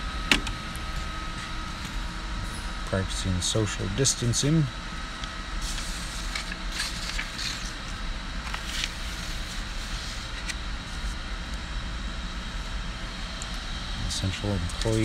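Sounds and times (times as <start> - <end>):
low background hum: 0.0 - 15.0
paper rustling in metal drawer: 5.6 - 7.8, 8.5 - 10.6.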